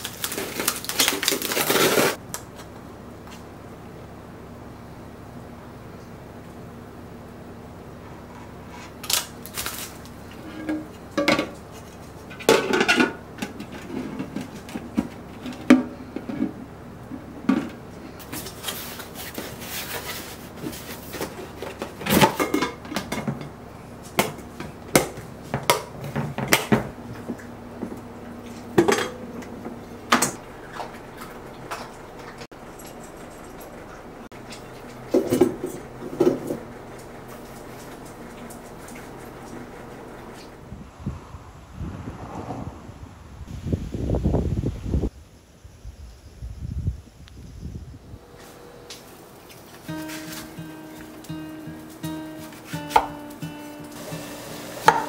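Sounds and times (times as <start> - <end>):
kitchenware clinking and knocking: 10.4 - 11.6, 12.3 - 16.6, 21.6 - 23.6, 28.7 - 31.0, 35.1 - 36.6
rustling: 18.0 - 22.4, 48.3 - 54.9.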